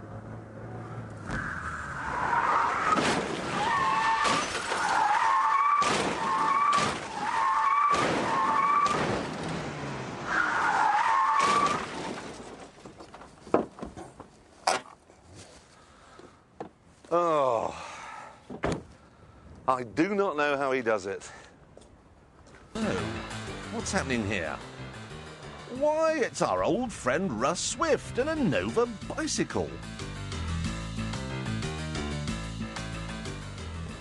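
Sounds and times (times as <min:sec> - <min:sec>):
car tyres squealing: 0:01.2 - 0:12.5.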